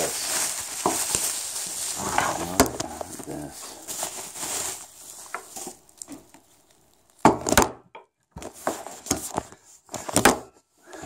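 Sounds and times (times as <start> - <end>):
scraping: 1.6 - 5.7.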